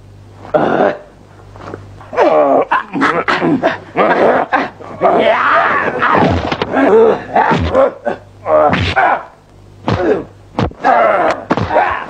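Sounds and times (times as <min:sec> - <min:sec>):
faint low hum: 0:00.0 - 0:12.0
men grunting and yelling: 0:02.1 - 0:12.0.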